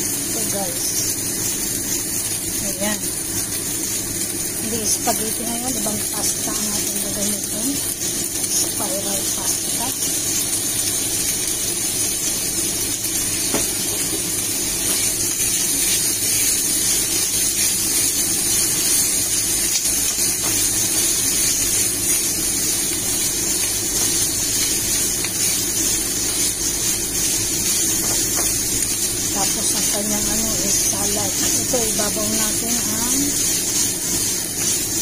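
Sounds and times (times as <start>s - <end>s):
food sizzling in a skillet: 0.0s - 35.0s
low even hum: 18.0s - 34.9s.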